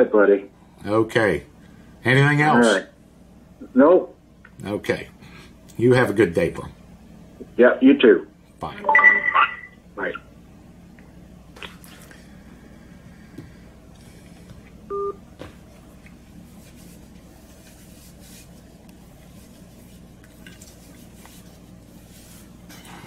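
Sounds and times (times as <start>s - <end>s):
low room hum: 0.0s - 23.0s
electronic phone beep: 8.9s - 9.7s, 14.9s - 15.2s.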